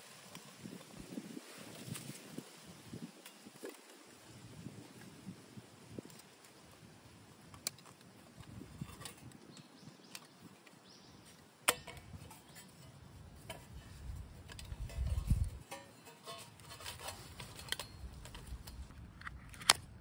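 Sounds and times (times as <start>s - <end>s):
stove bumping on ground: 7.6s - 19.7s
metal stove panels clinking: 11.7s - 12.9s, 14.5s - 18.0s.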